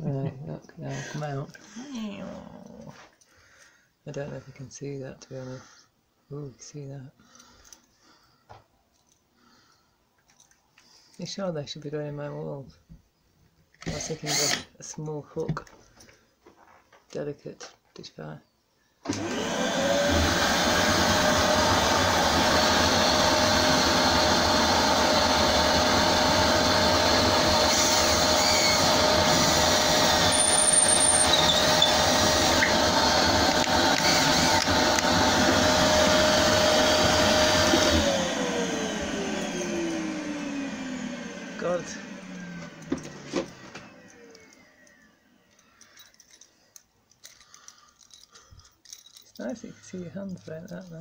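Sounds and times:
drill motor winding down: 13.8 - 14.7, 19.1 - 45.5
vacuum cleaner running: 13.9 - 14.6, 19.0 - 45.5.

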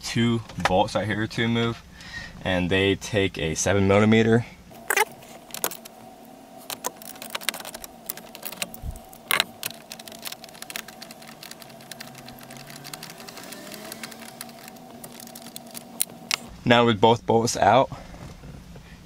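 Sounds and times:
socket ratchet clicking: 6.7 - 16.5.

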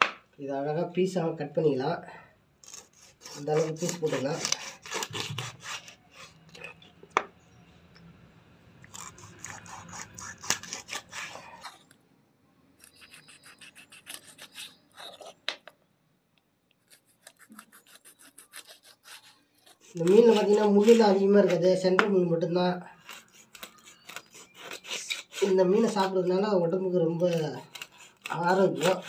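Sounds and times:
sharp knocks on chopping board: 0.0 - 0.2
knife sawing through fish: 2.6 - 6.8, 8.9 - 11.9, 12.8 - 15.5, 16.9 - 21.8, 23.0 - 29.0.

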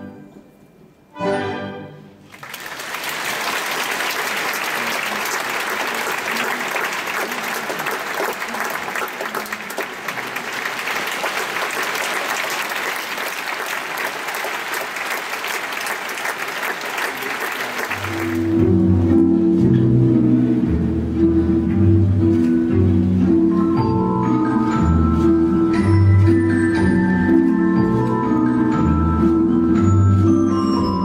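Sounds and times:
audience applauding: 2.2 - 18.6
music with low held notes: 18.4 - 31.0.

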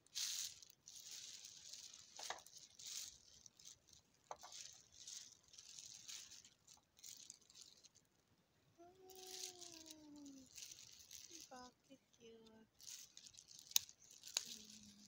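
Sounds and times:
plastic bag rustling: 0.0 - 8.1, 8.8 - 15.0.

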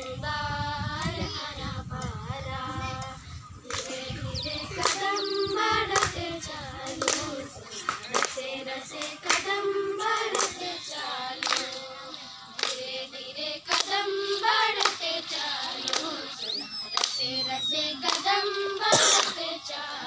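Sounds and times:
girls singing together: 0.0 - 20.0
hand claps: 3.6 - 4.0, 4.7 - 5.2, 5.8 - 6.2, 6.8 - 13.0, 13.6 - 17.4, 18.0 - 19.5.

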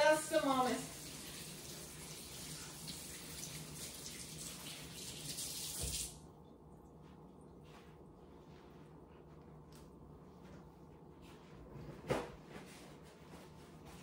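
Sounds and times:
faucet running: 0.3 - 6.2
faucet shut-off thump: 5.6 - 6.1.

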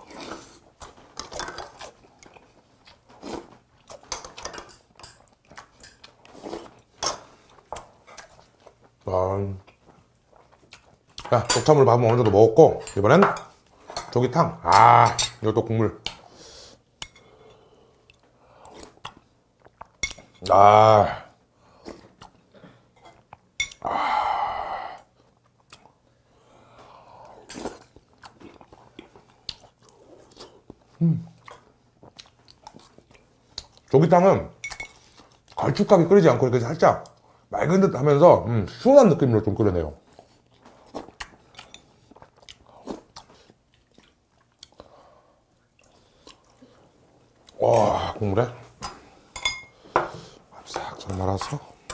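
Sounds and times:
soft sipping and chewing: 0.0 - 11.4, 16.1 - 20.5, 24.9 - 34.0, 34.7 - 35.7, 40.0 - 51.9
metal spoon clinking on bowl: 49.4 - 49.7.

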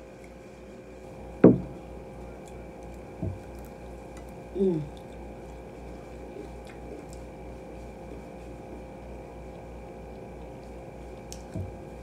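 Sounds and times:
person humming mm: 4.5 - 5.0.

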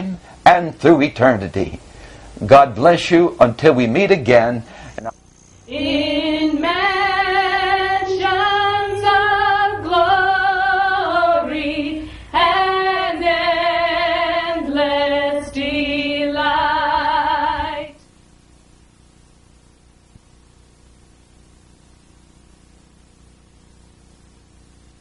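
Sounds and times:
faint hiss: 0.0 - 25.0
woman singing with vibrato: 5.7 - 18.0.

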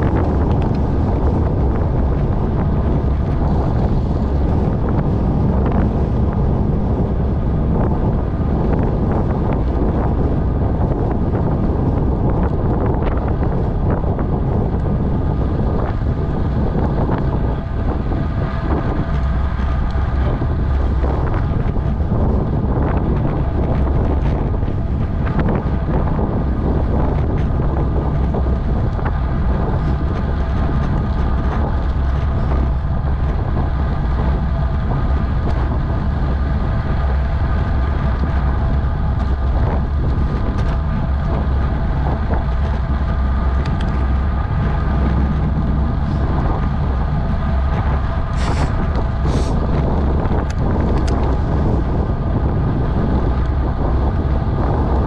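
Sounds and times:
tyres rumbling on rough asphalt: 0.0 - 55.0
wind buffeting microphone: 0.0 - 55.0.

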